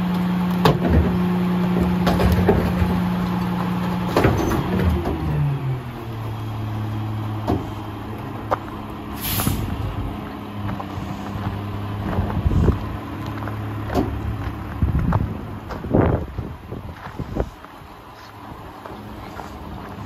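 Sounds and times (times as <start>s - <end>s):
diesel truck engine idling: 0.0s - 20.0s
air hiss: 9.2s - 9.8s.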